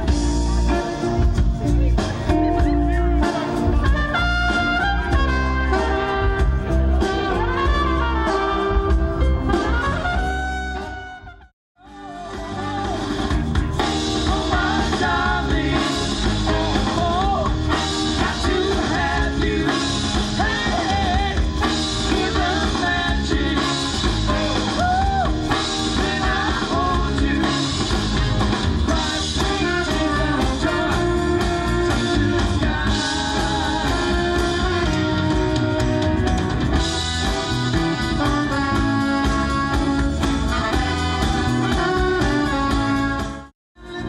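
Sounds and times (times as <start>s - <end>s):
live rock band playing: 0.0s - 44.0s
man singing: 13.8s - 28.1s, 28.9s - 35.2s.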